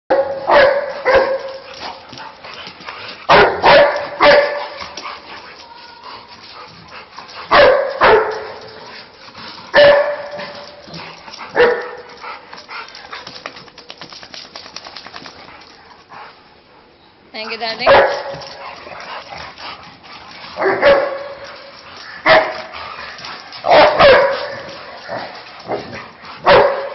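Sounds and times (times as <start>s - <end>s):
dog barking: 0.1s - 1.6s, 3.3s - 4.8s, 7.5s - 8.5s, 9.8s - 10.3s, 11.6s - 12.0s, 17.9s - 18.3s, 20.6s - 21.4s, 23.7s - 24.7s, 26.4s - 26.9s.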